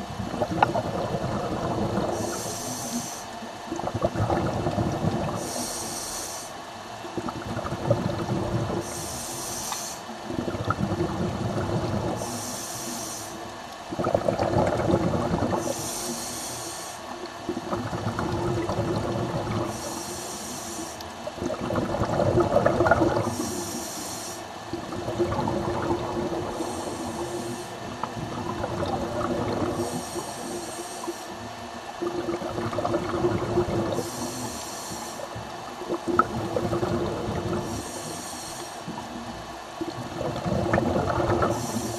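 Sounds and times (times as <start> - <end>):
exhaust bubbles rushing: 0.0 - 2.2, 3.7 - 5.4, 7.2 - 8.9, 10.3 - 12.3, 13.9 - 15.7, 17.5 - 19.8, 21.3 - 23.4, 24.7 - 27.3, 27.9 - 30.0, 32.0 - 34.0, 35.8 - 37.7, 39.8 - 41.8
regulator hissing inhalations: 2.1 - 3.4, 5.4 - 6.6, 8.8 - 10.2, 12.2 - 13.5, 15.6 - 17.2, 19.6 - 21.1, 23.2 - 24.6, 26.5 - 27.9, 29.7 - 31.5, 33.9 - 35.4, 37.6 - 39.0, 41.4 - 41.9.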